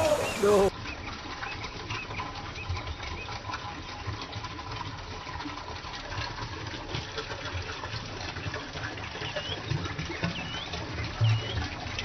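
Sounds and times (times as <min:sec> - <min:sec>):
stream water rushing: 0:00.0 - 0:00.7.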